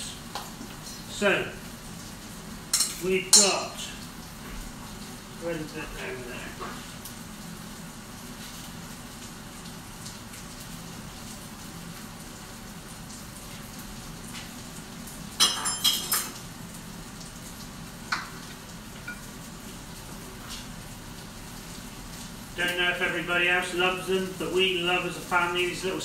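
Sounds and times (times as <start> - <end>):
potatoes sizzling in a pan: 0.0 - 26.0
kitchenware clattering: 2.7 - 3.6, 15.4 - 16.4.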